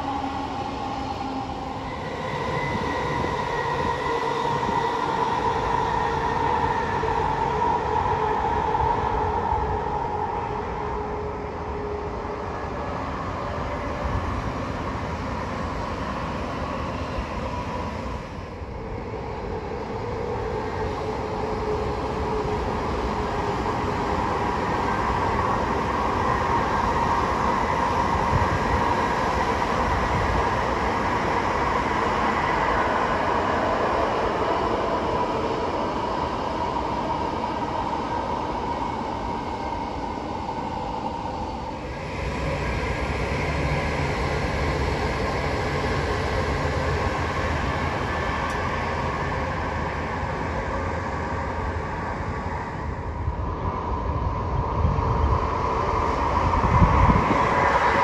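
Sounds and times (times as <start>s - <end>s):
constant whine: 0.0s - 58.0s
train rushing noise: 0.0s - 58.0s.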